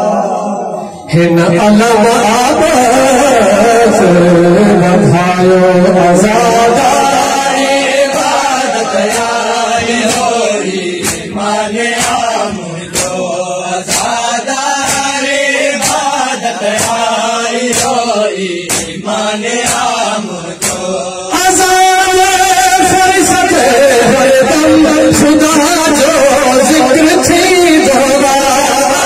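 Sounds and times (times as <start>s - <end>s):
man chanting over loudspeaker: 0.0s - 29.0s
sharp beat: 5.8s - 29.0s.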